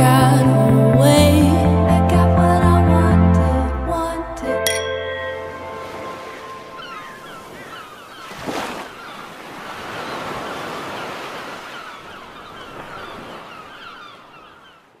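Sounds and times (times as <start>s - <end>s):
sea surf washing in: 5.2s - 14.2s.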